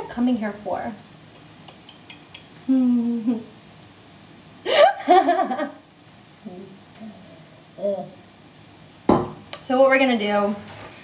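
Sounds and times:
woman humming: 2.6s - 3.6s, 6.4s - 8.2s.

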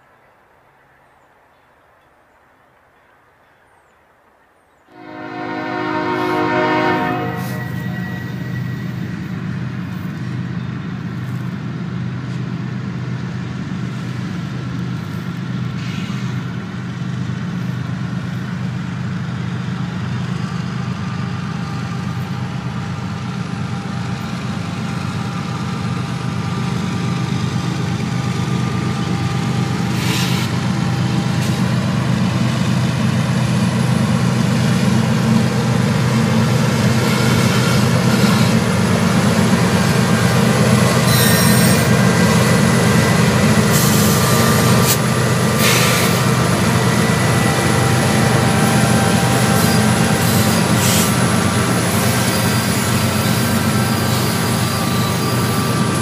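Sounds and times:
diesel locomotive engine drone: 4.9s - 56.0s.

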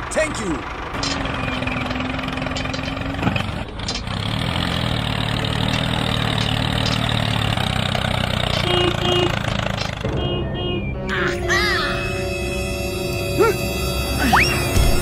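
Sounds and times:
tractor engine idling: 0.0s - 11.1s.

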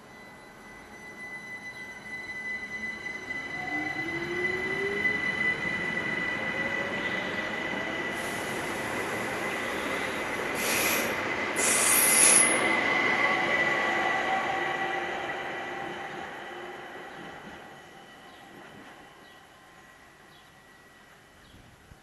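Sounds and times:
train wheels rumbling on rail: 3.0s - 19.4s
high hiss or squeal: 8.1s - 12.7s.

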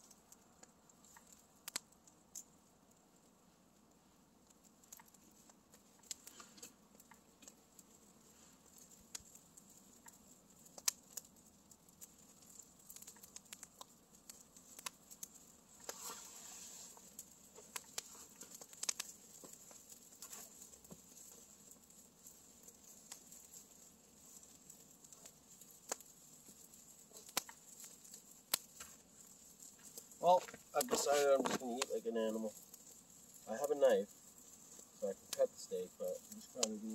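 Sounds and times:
campfire crackling: 0.0s - 36.9s
fire hissing: 0.0s - 36.9s
sharp wood snaps: 0.2s - 2.5s, 4.5s - 7.9s, 8.8s - 16.2s, 17.0s - 31.9s.

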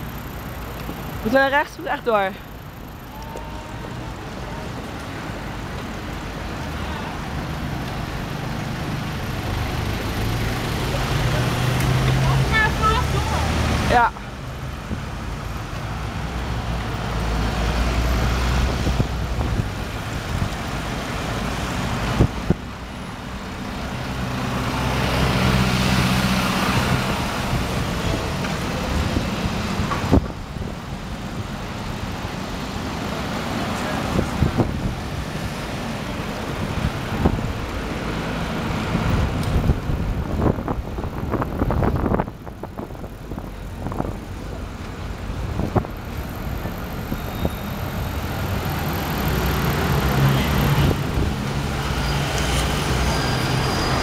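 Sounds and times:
road traffic passing: 0.0s - 54.0s.

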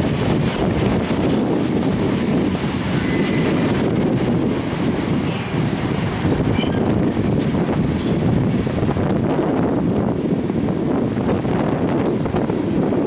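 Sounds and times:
freight train wheels rumbling on rail: 0.0s - 13.0s
high wheel squeal: 2.0s - 3.9s, 6.5s - 6.9s.

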